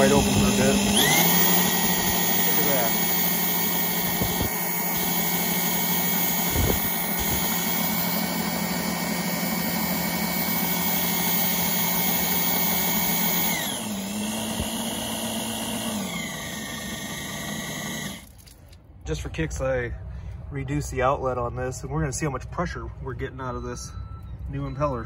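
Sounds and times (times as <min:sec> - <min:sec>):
electric drill whine: 0:00.0 - 0:18.3.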